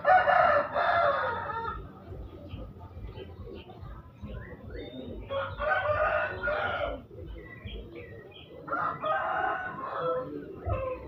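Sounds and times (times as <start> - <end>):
rooster crowing: 0.0 - 1.8, 5.3 - 7.0, 8.7 - 11.0.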